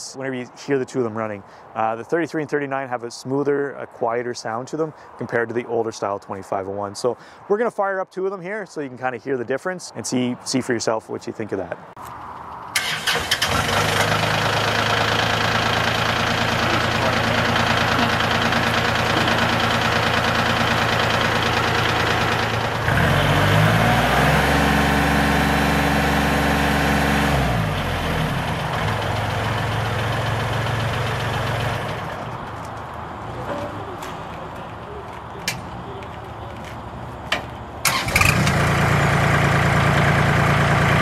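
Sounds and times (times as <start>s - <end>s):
diesel tractor engine idling and revving: 12.7s - 34.6s, 36.5s - 41.0s.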